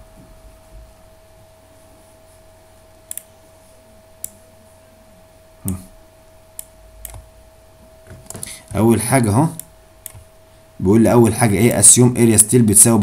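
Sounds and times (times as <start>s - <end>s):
computer mouse clicks: 3.1s - 3.3s, 6.6s - 7.3s, 9.6s - 10.3s.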